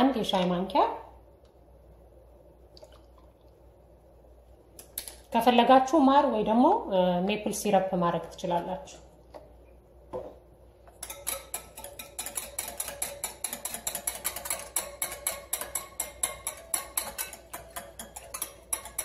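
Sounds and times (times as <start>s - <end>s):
whisk clicking against glass bowl: 11.0s - 19.0s.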